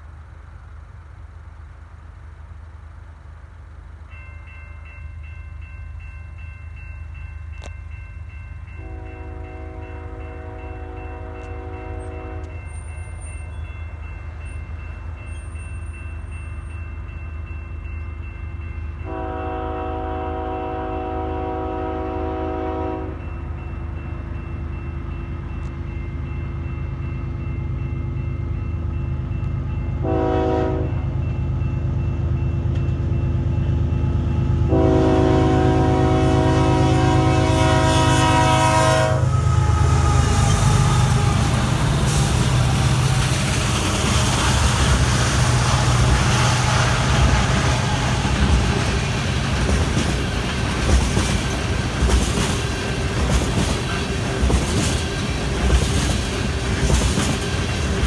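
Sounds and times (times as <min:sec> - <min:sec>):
locomotive rumble: 0:00.0 - 0:58.0
crossing signal bell ringing: 0:03.8 - 0:53.2
locomotive air horn: 0:08.8 - 0:12.6, 0:19.0 - 0:23.2, 0:30.0 - 0:31.0, 0:34.6 - 0:42.3.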